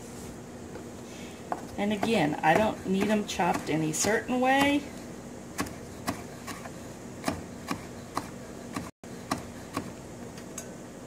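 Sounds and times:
knife chopping on wooden board: 2.0 - 4.8, 5.6 - 10.0.

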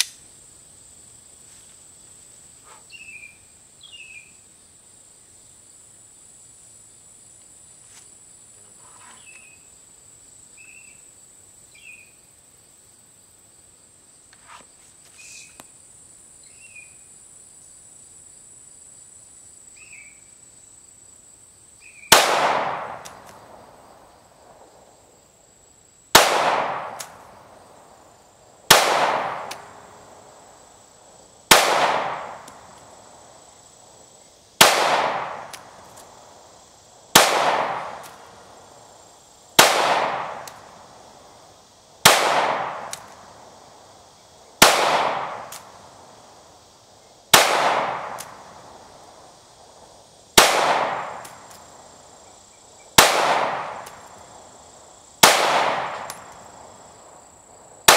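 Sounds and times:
insects humming: 0.0 - 57.9
pistol shots echoing: 22.1 - 23.3, 26.2 - 27.2, 28.7 - 29.8, 31.5 - 32.6, 34.6 - 35.6, 37.2 - 38.2, 39.6 - 40.6, 42.0 - 43.1, 44.6 - 45.6, 47.3 - 48.4, 50.4 - 51.3, 53.0 - 54.0, 55.2 - 56.3.

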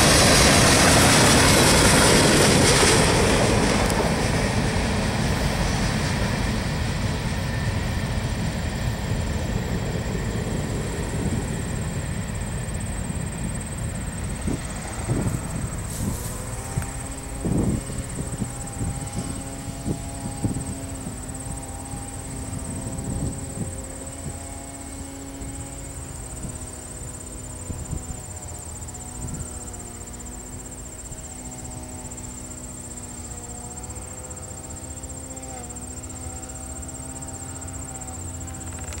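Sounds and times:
insects buzzing: 0.0 - 39.0
low train hum: 0.0 - 39.0
train wheels clicking over rail joints: 38.6 - 39.0.

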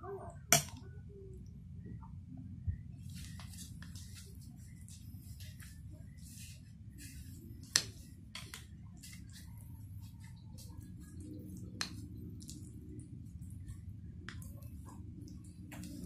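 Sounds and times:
low steady hum: 0.0 - 16.0
spoon scooping porridge: 6.3 - 12.7.

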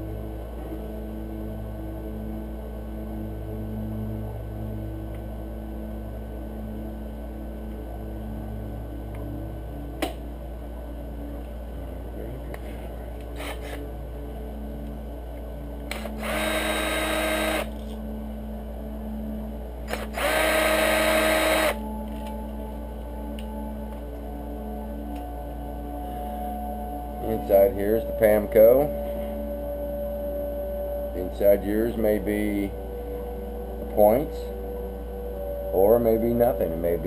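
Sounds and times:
electric screwdriver whine: 13.4 - 13.8, 15.9 - 17.8, 19.9 - 21.8.

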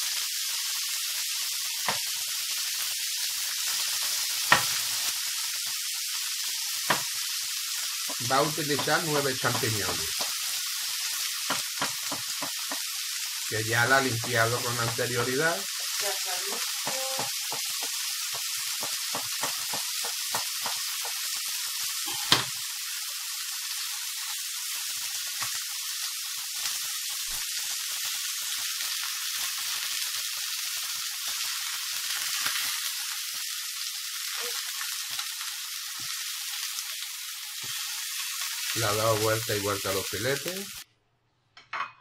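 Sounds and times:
chicken sizzling in a pan: 0.0 - 40.9
knocks on a pan: 16.5 - 21.2, 22.1 - 22.5.

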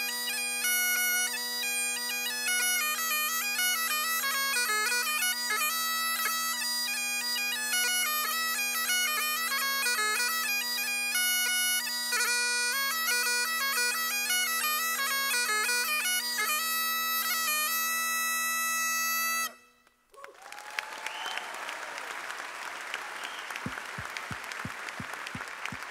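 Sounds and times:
bagpipe playing a tune: 0.0 - 19.8
audience applause: 20.2 - 25.9
audience cheer: 20.2 - 25.9.

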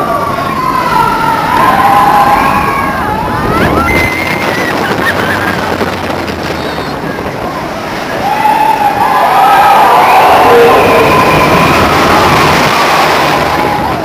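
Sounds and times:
roller coaster train rushing: 0.0 - 14.0
riders screaming: 8.1 - 14.0.

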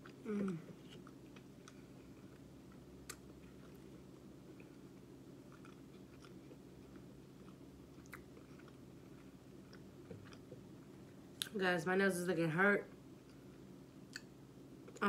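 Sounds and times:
chewing with mouth clicks: 0.0 - 10.8
low steady hum: 0.0 - 15.0.

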